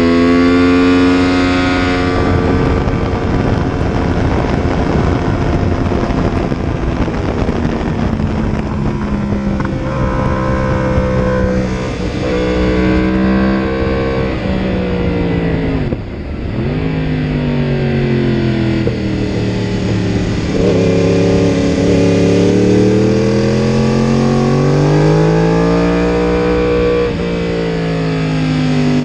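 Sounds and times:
motorcycle engine running hard: 0:00.0 - 0:29.0
wind noise: 0:00.0 - 0:29.0.

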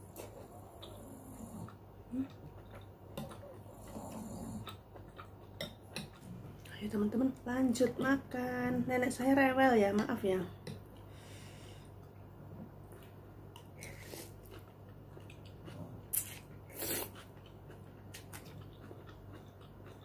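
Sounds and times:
steady low hum: 0:00.0 - 0:20.0
chewing: 0:00.1 - 0:08.2, 0:12.9 - 0:20.0
person slurping noodles: 0:16.2 - 0:17.2.

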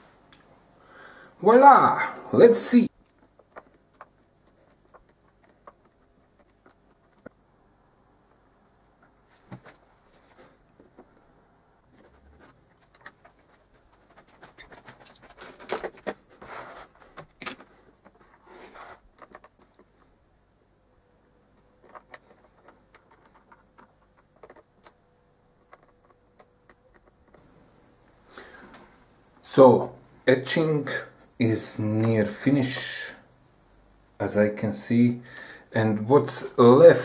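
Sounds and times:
handling noise: 0:08.2 - 0:20.2, 0:21.4 - 0:29.0.

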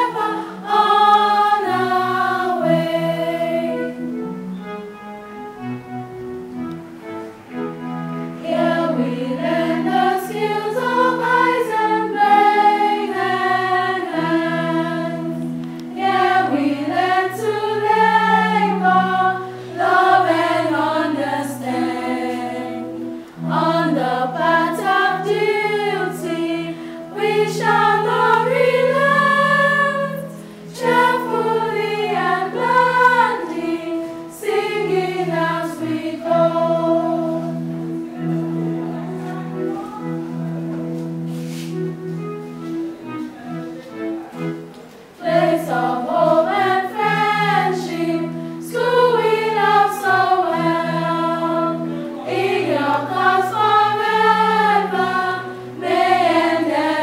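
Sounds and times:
girls' choir singing: 0:00.0 - 0:04.3, 0:08.4 - 0:42.0, 0:43.1 - 0:57.0
held low accompaniment notes: 0:25.1 - 0:48.7.

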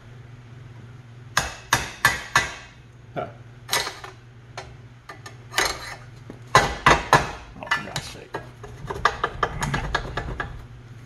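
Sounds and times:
hammer tapping metal: 0:01.4 - 0:02.8.

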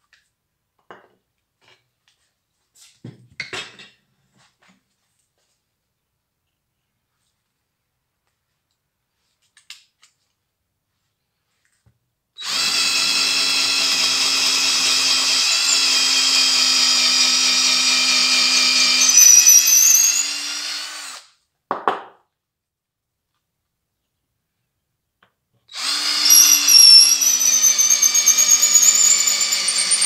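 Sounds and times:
power drill running: 0:12.4 - 0:21.3, 0:25.7 - 0:30.0.

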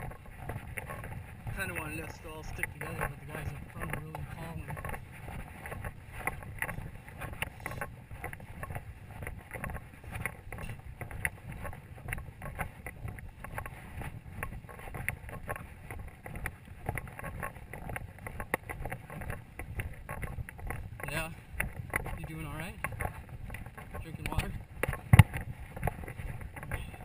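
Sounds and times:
footsteps on dirt track: 0:00.0 - 0:27.0
gear rattling: 0:00.0 - 0:27.0
wind rumble on microphone: 0:00.0 - 0:27.0.

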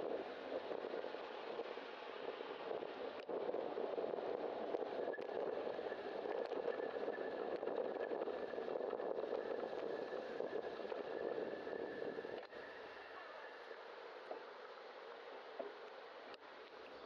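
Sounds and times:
cars in slow traffic: 0:00.0 - 0:17.0
faint high steady whine: 0:00.0 - 0:17.0.

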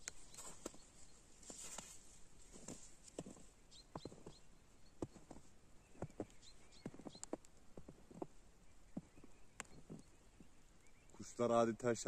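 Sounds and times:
footsteps crunching in snow: 0:00.0 - 0:07.2.

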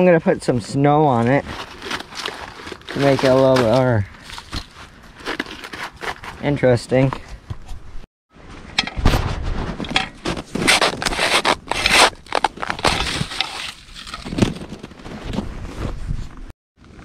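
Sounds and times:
shovel scraping crusted snow: 0:01.2 - 0:07.1, 0:09.0 - 0:15.9.

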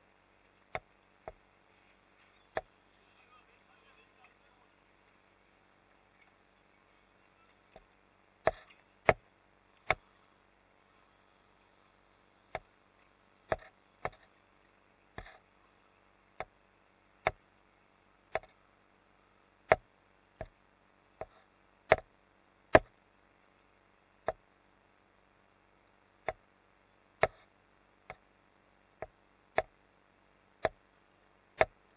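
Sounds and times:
faint steady hiss: 0:00.0 - 0:31.9
sharp knocks and clicks: 0:00.7 - 0:01.4, 0:02.5 - 0:02.7, 0:07.7 - 0:10.0, 0:13.5 - 0:14.3, 0:16.4 - 0:16.6, 0:17.2 - 0:17.4, 0:18.3 - 0:18.6, 0:19.7 - 0:20.6, 0:21.2 - 0:22.1, 0:22.7 - 0:22.9, 0:24.2 - 0:24.4, 0:26.2 - 0:26.4, 0:27.2 - 0:27.5, 0:29.0 - 0:29.8, 0:30.6 - 0:30.8, 0:31.6 - 0:31.8.

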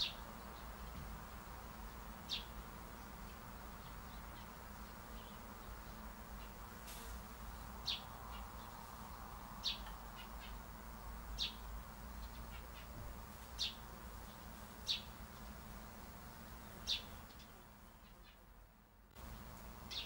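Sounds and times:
faint outdoor hiss: 0:00.0 - 0:20.0
bird chirping: 0:01.8 - 0:06.6, 0:07.5 - 0:10.7, 0:11.4 - 0:11.6, 0:13.6 - 0:15.6, 0:16.7 - 0:18.4, 0:19.2 - 0:20.0.

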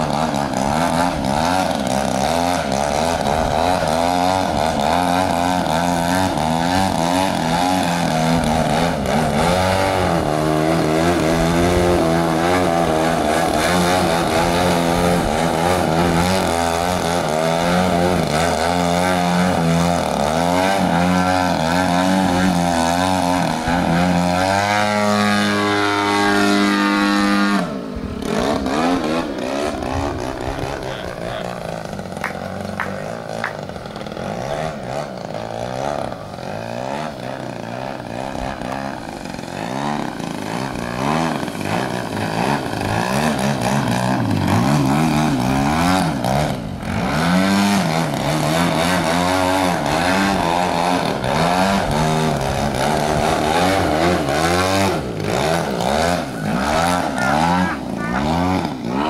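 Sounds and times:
model plane engine droning: 0:00.0 - 0:59.0.

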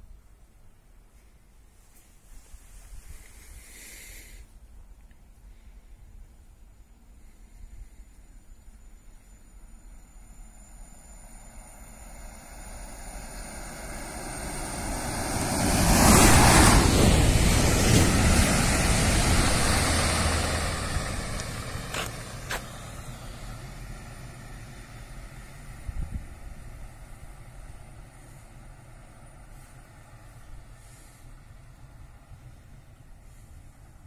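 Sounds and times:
electric train passing: 0:06.6 - 0:34.0.

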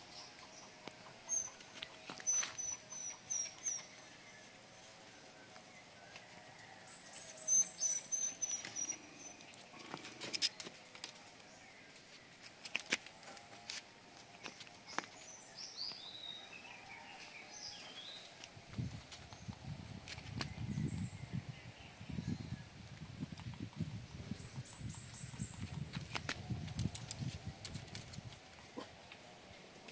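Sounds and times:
birds chirping: 0:00.0 - 0:12.6, 0:13.2 - 0:29.2.

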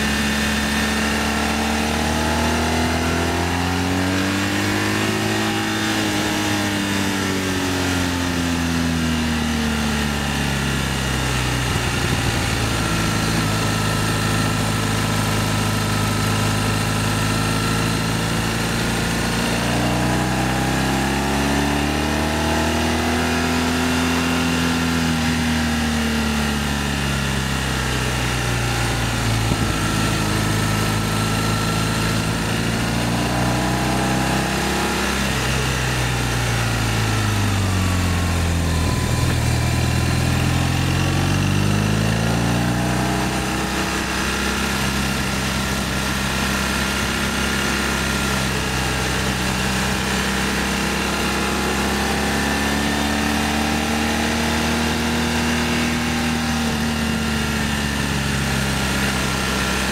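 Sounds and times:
motorcycle engine running: 0:00.0 - 0:59.9
wind and road noise: 0:02.1 - 0:21.8, 0:26.8 - 0:52.4.

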